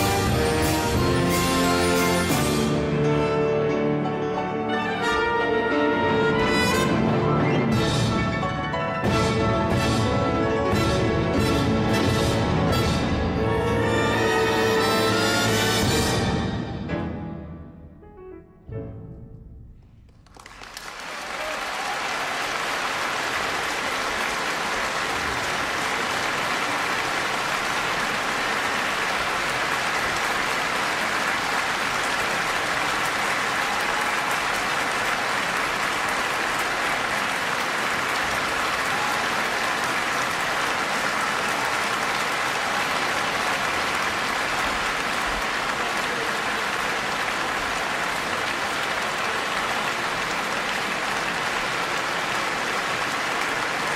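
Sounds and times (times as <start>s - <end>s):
audience applauding: 20.1s - 53.9s.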